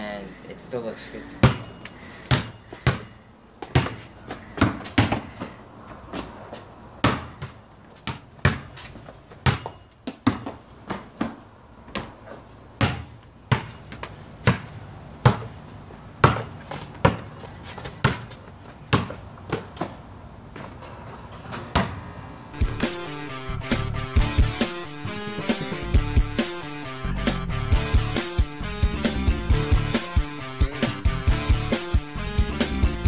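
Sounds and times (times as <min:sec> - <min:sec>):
basketball bouncing on concrete: 0:01.4 - 0:12.2, 0:12.8 - 0:20.0, 0:21.7 - 0:22.0, 0:22.6 - 0:23.0.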